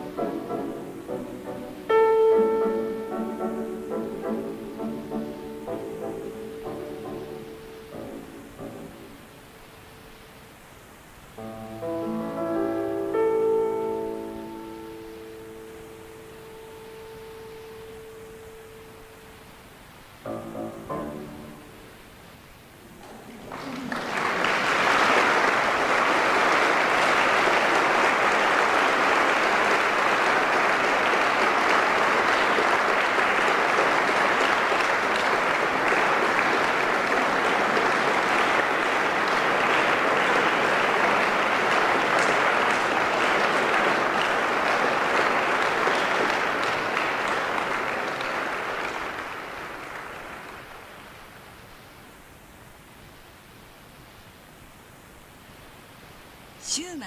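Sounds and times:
audience applauding: 23.0s - 52.1s.

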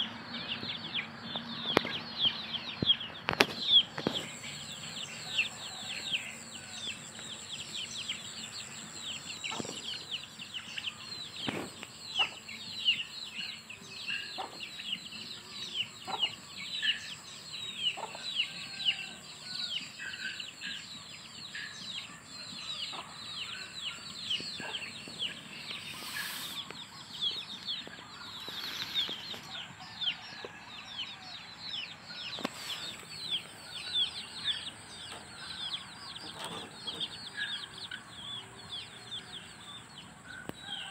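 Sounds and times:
chickens clucking: 0.0s - 40.9s
chicks peeping: 0.0s - 40.9s.

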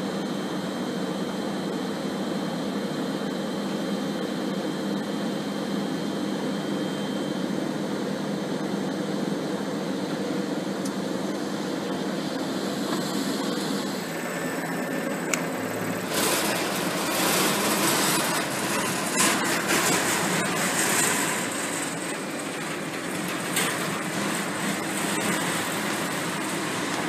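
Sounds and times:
machine mechanical rushing: 14.1s - 27.0s.

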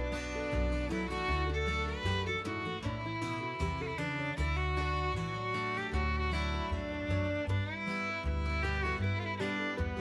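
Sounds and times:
low bass line: 0.0s - 10.0s
string instrument melody: 0.0s - 10.0s.

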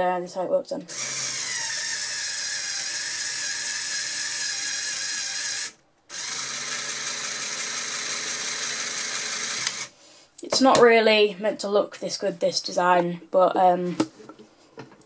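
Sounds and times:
actuators and gears whirring: 0.9s - 9.9s.

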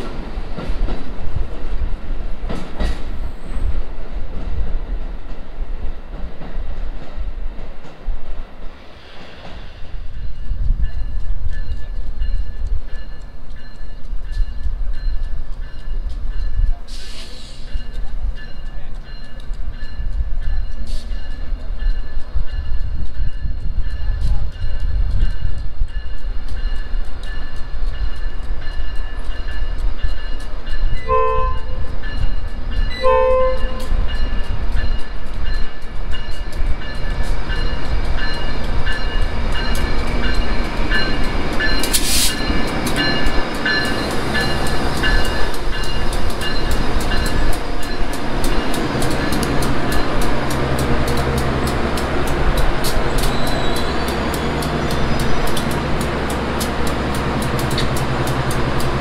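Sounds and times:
train rumbling with wheel clicks: 0.0s - 59.0s
hiss: 8.7s - 10.2s, 16.9s - 17.9s, 41.8s - 42.4s
train horn blasts: 31.0s - 31.9s, 32.9s - 34.0s.

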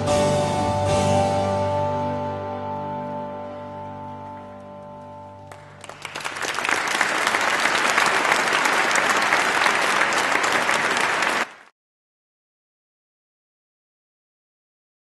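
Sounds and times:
audience applauding: 5.5s - 11.7s.

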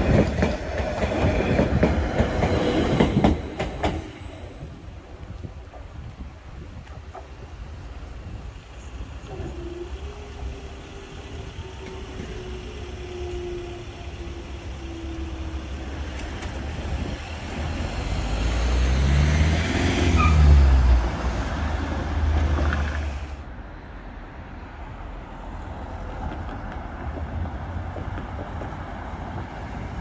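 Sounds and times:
cars driving past: 17.0s - 23.4s.

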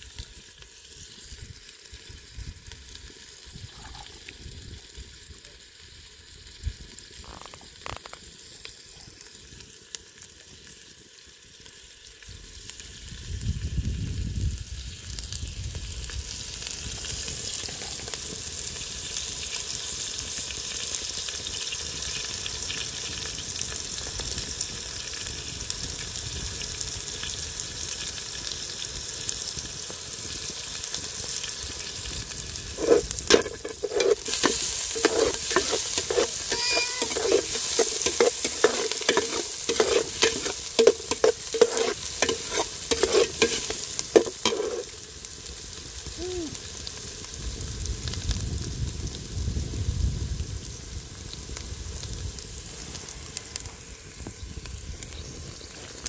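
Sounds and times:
food sizzling in a pan: 0.0s - 56.0s
metal utensil scraping a pan: 32.8s - 45.0s.

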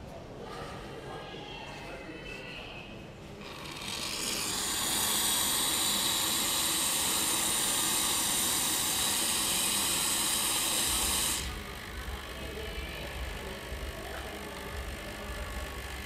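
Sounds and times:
steam hissing from espresso machine: 3.4s - 16.0s.

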